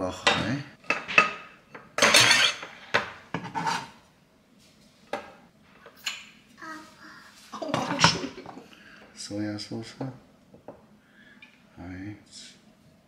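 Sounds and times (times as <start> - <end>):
rough scrape on bowl: 3.4 - 4.0.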